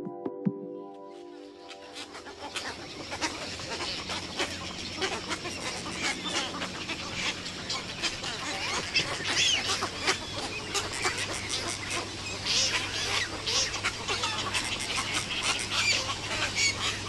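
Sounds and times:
many birds calling: 1.1s - 17.0s.

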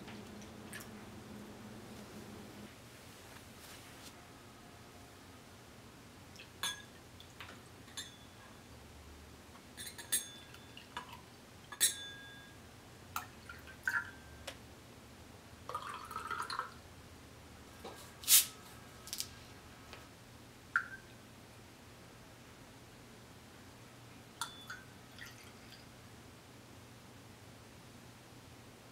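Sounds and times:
glasses clinking: 6.6s - 7.0s, 7.9s - 8.4s, 9.8s - 10.8s, 11.7s - 12.6s, 24.4s - 24.9s
liquid pouring into glasses: 15.7s - 16.8s, 24.4s - 25.9s.

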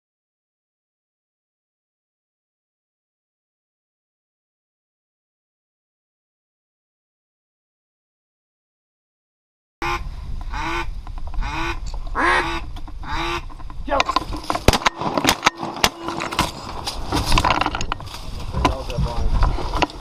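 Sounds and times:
waterfowl honking: 9.8s - 13.5s.

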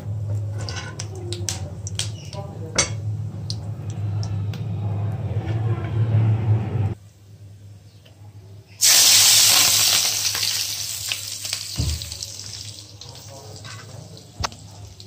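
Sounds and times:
steady low hum: 0.0s - 7.8s
spices crackling in hot oil: 0.1s - 4.2s, 8.8s - 15.0s.

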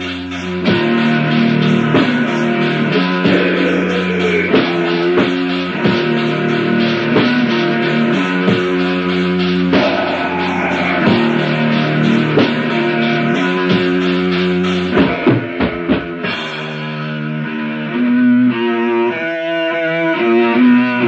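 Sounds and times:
distorted electric guitar chords: 0.0s - 21.0s
drum hits: 0.6s - 17.0s.

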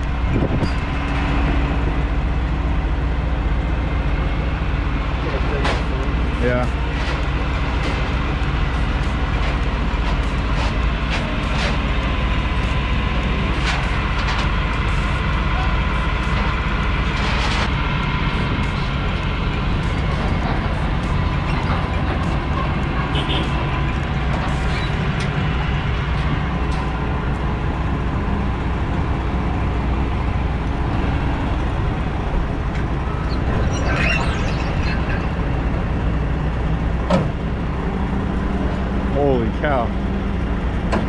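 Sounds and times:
vehicle engine running: 0.0s - 41.0s.

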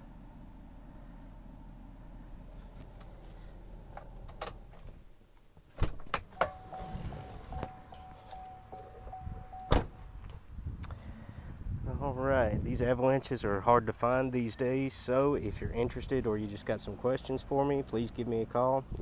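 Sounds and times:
low steady hum: 0.0s - 19.0s
car door unlatching: 5.8s - 10.1s
electronic warning chime: 6.4s - 9.8s
car door slamming shut: 9.5s - 10.1s.

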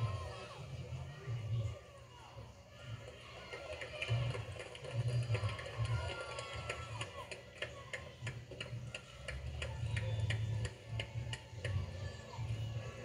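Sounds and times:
table tennis balls clicking: 3.4s - 11.9s.

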